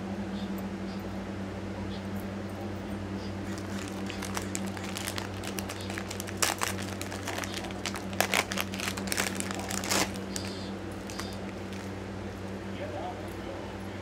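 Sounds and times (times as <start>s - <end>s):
steady low hum: 0.0s - 14.0s
plastic bag crinkling: 3.4s - 12.1s.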